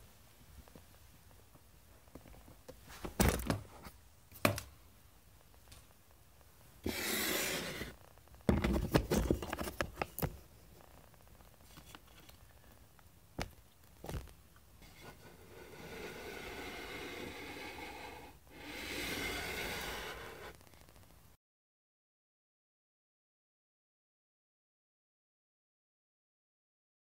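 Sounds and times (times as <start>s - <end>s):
scrape on tabletop: 6.8s - 8.0s, 14.8s - 20.6s.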